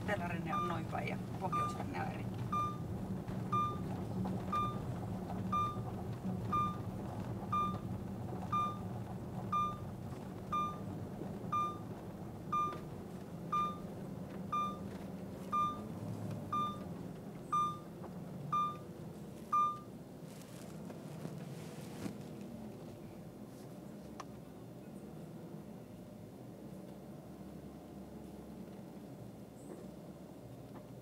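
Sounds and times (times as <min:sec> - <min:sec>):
car engine and road noise: 0:00.0 - 0:31.0
dashboard chime beeping: 0:00.5 - 0:01.9, 0:02.5 - 0:02.8, 0:03.5 - 0:03.9, 0:04.5 - 0:04.9, 0:05.5 - 0:05.9, 0:06.5 - 0:06.8, 0:07.5 - 0:07.8, 0:08.5 - 0:08.8, 0:09.5 - 0:09.8, 0:10.5 - 0:10.8, 0:11.5 - 0:11.9, 0:12.5 - 0:12.8, 0:13.5 - 0:13.9, 0:14.5 - 0:14.8, 0:15.5 - 0:15.9, 0:16.5 - 0:16.8, 0:17.5 - 0:17.9, 0:18.5 - 0:18.8, 0:19.6 - 0:19.9.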